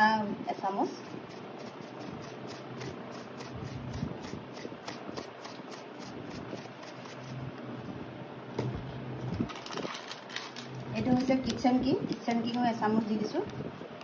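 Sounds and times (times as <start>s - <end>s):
packet rustling: 9.5s - 12.8s.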